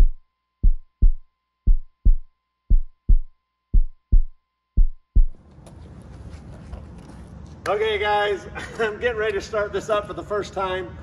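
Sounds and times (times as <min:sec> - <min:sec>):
heartbeat lub-dub thumps: 0:00.0 - 0:05.4.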